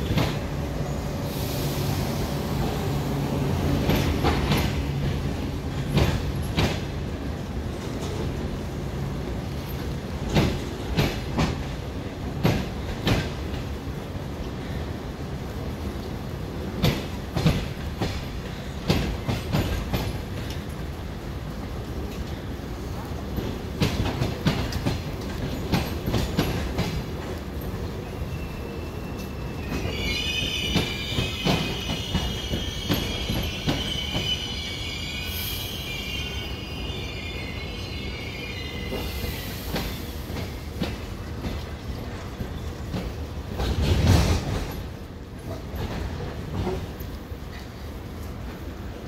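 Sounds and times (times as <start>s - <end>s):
train rumbling: 0.0s - 49.0s
high-pitched brake squeal: 28.0s - 40.2s.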